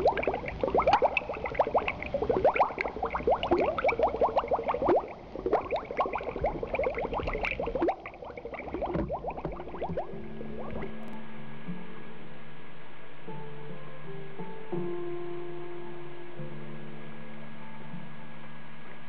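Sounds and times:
water bubbling: 0:00.0 - 0:11.2.

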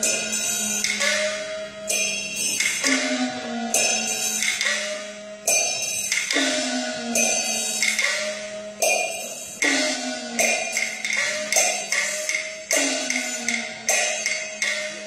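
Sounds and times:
cymbals struck: 0:00.0 - 0:15.0
gongs ringing with bending pitch: 0:00.0 - 0:15.0.

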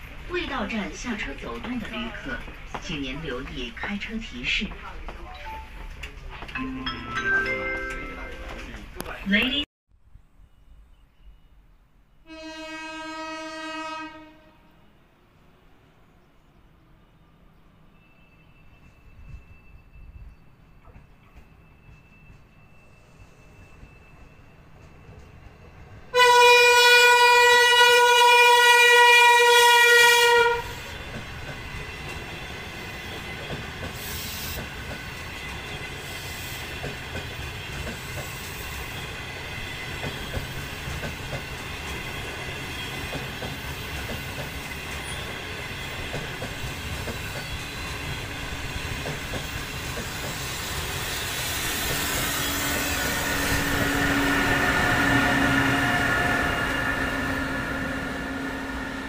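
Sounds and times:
train wheels on rails: 0:00.0 - 0:06.6, 0:18.0 - 0:59.0
train horn blast: 0:12.2 - 0:14.9, 0:26.1 - 0:31.0, 0:52.1 - 0:59.0.

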